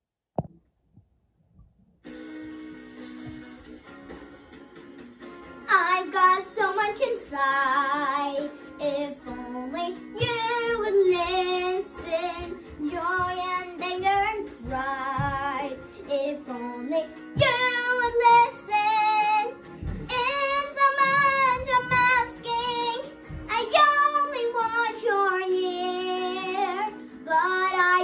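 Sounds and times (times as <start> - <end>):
girl singing with vibrato: 5.7 - 28.0.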